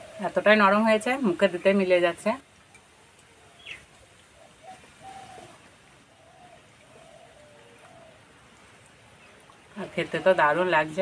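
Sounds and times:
faint bird calls: 0:02.8 - 0:10.7.

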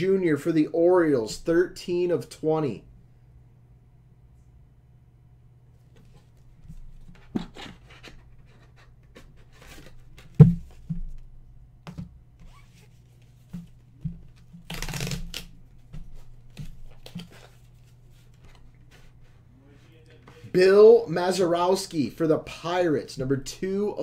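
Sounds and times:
cardboard tapping and rustling: 0:05.9 - 0:12.2.

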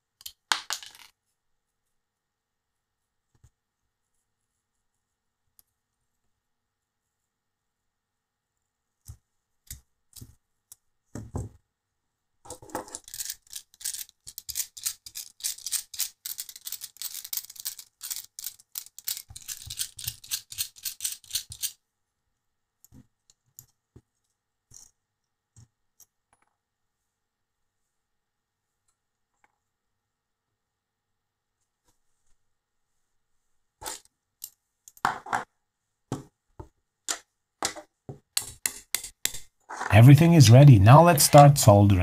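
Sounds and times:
parts clicking and tapping: 0:12.5 - 0:21.8, 0:36.1 - 0:39.5.

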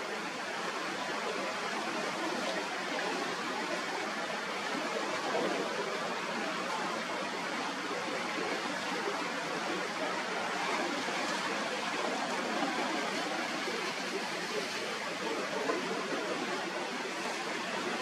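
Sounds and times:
wind: 0:00.0 - 0:18.0
waves breaking: 0:08.5 - 0:18.0.

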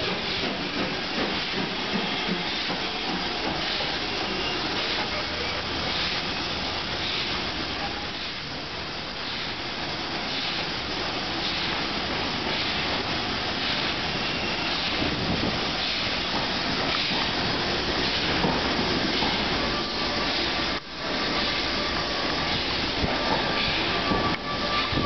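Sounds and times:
carriage wheels rushing on rails: 0:00.0 - 0:07.3
steam train hissing: 0:00.0 - 0:25.0.

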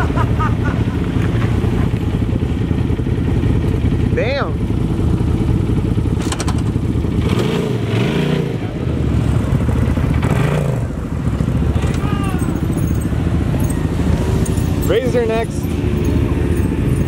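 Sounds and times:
engines idling: 0:00.0 - 0:17.0
engine revving: 0:05.0 - 0:17.0.

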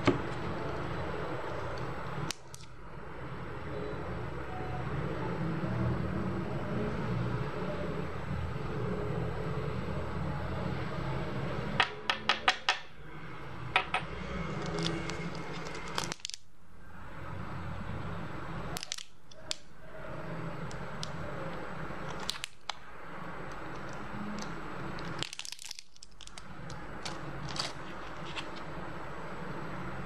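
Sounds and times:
steady low hum: 0:12.8 - 0:30.0
plastic bag crinkling: 0:14.6 - 0:16.4, 0:23.7 - 0:28.5.

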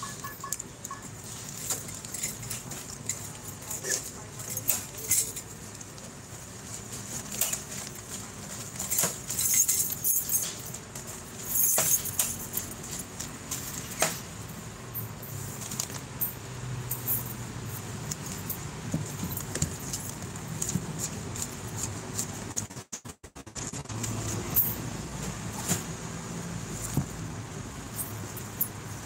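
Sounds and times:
plastic packaging rustling: 0:00.2 - 0:14.4
clicks and knocks of items: 0:07.0 - 0:14.3.

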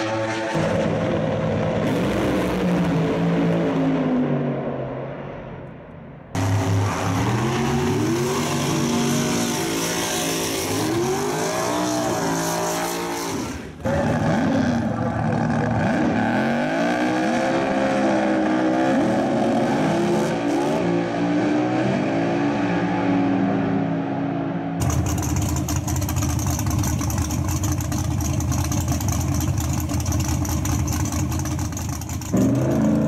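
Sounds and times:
racing car engines accelerating: 0:06.4 - 0:25.6.

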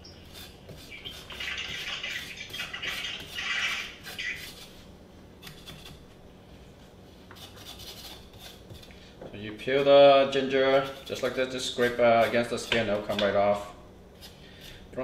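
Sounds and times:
knife scraping ginger skin: 0:00.2 - 0:04.8, 0:05.4 - 0:06.0, 0:07.3 - 0:09.0, 0:09.7 - 0:13.4, 0:14.2 - 0:14.8.

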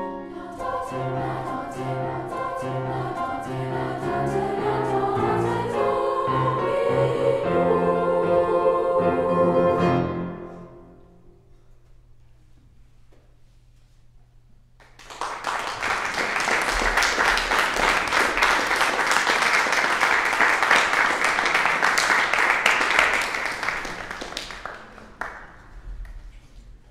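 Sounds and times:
audience applause: 0:14.8 - 0:25.7.

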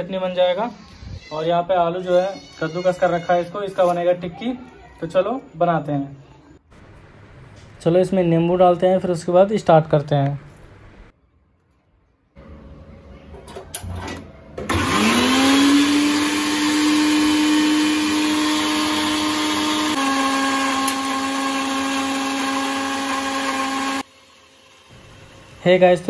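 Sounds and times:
mixer grinder motor whine: 0:14.6 - 0:26.0.

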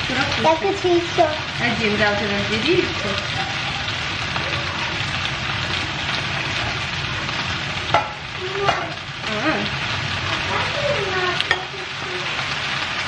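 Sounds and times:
potatoes sizzling in frying pan: 0:00.0 - 0:13.0
spatula scraping and knocking pan: 0:06.1 - 0:09.0.

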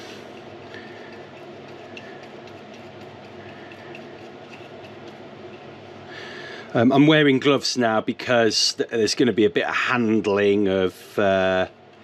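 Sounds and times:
brush tapping and scraping wood: 0:00.0 - 0:05.8
steady low hum: 0:00.0 - 0:12.0.

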